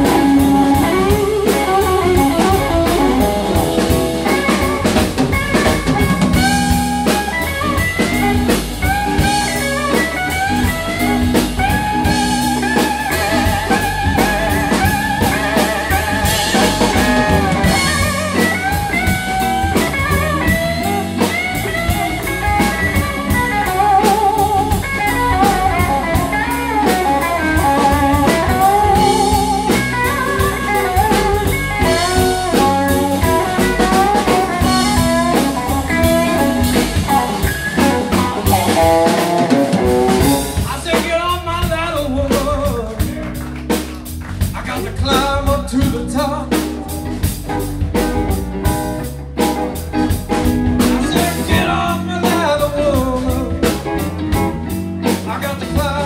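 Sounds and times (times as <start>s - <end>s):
lead guitar bent notes: 0.0s - 41.0s
blues band playing: 0.0s - 56.0s.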